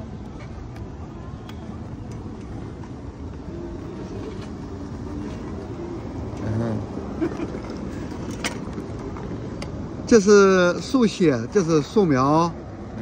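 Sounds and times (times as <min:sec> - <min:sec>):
low city rumble: 0:00.0 - 0:13.0
faint voices: 0:00.3 - 0:08.2.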